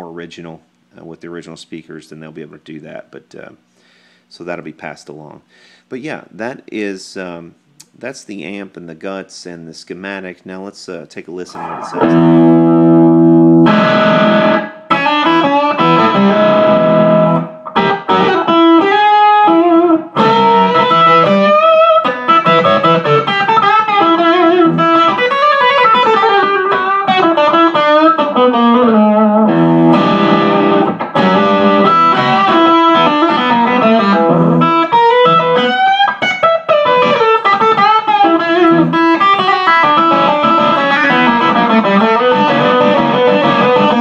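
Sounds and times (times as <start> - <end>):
overdriven electric guitar: 11.5 - 44.0.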